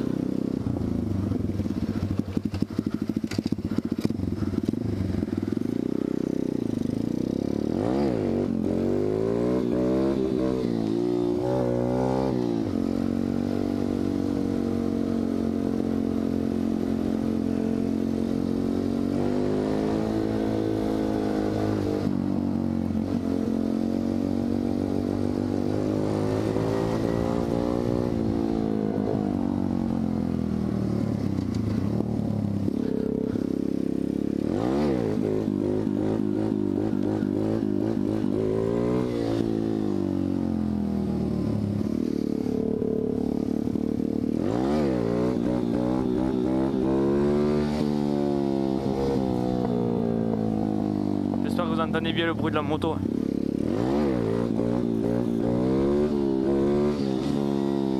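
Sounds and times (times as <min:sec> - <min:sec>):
dirt bike engine revving: 0:01.9 - 0:16.7, 0:23.0 - 0:29.4, 0:32.7 - 0:40.2, 0:42.0 - 0:57.9.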